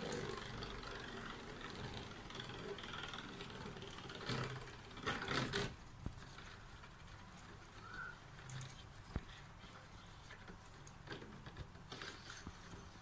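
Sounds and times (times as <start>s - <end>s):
spinning top whirring in plastic stadium: 0.0s - 9.0s.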